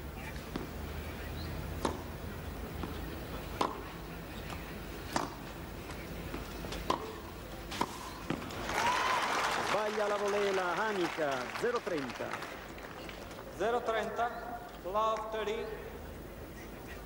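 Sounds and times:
low background hum: 0.0s - 17.0s
tennis ball struck by rackets: 1.8s - 2.1s, 2.8s - 3.9s, 4.5s - 5.5s, 6.3s - 8.5s.

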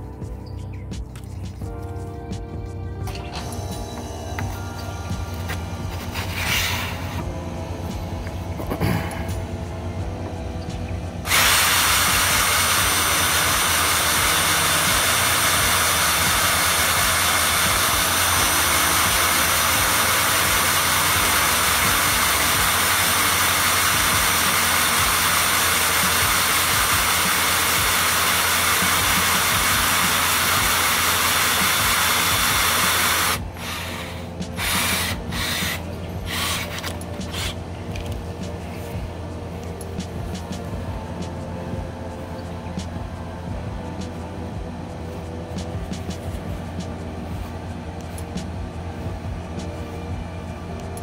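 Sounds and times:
power drill whine with grinding: 3.0s - 7.5s, 10.2s - 38.1s
handling noises: 33.5s - 51.0s.

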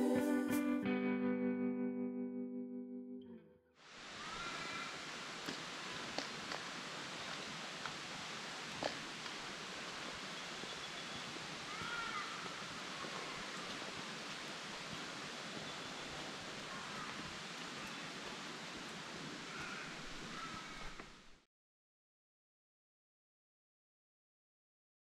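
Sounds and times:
outdoor ambient hiss: 3.8s - 21.5s
faint bird calls: 4.1s - 5.0s, 10.4s - 13.7s, 15.0s - 18.0s, 19.4s - 21.4s.

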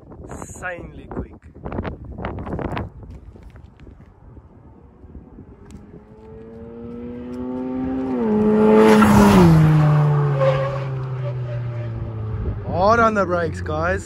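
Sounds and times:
car accelerating past: 5.5s - 13.8s.

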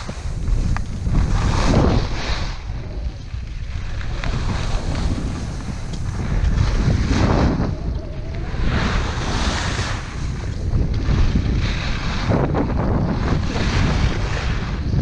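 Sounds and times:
wind noise on microphone: 0.0s - 15.0s.

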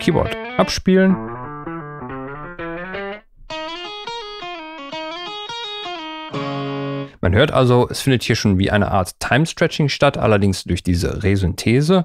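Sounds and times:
synthesized plucked guitar notes: 0.0s - 7.2s.

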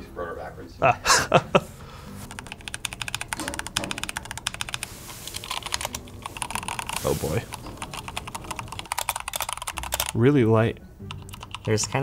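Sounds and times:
fast typing on mechanical keyboard: 2.3s - 10.2s, 11.1s - 12.0s.

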